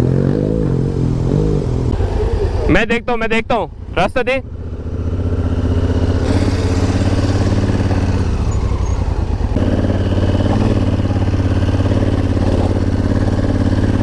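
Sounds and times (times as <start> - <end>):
motorcycle engine running at low revs: 3.7 - 14.0.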